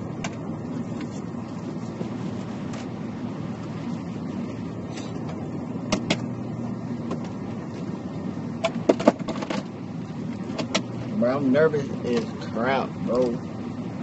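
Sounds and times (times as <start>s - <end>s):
car engine idling hum: 0.0s - 14.0s.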